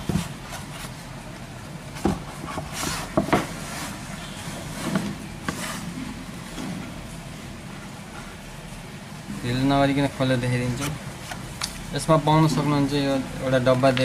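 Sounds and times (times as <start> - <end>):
cardboard box sliding scrape: 2.5 - 6.1.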